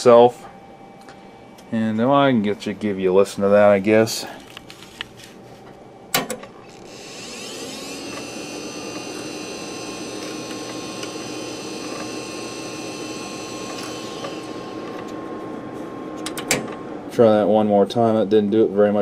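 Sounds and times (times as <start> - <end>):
hard drive spinning up whine: 6.6 - 17.1.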